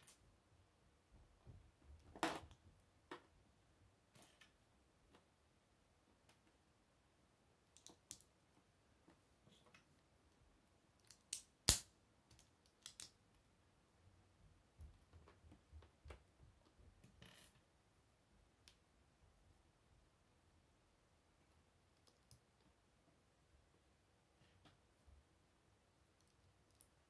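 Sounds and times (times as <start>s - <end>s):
plastic bricks clicking together: 11.0s - 13.1s.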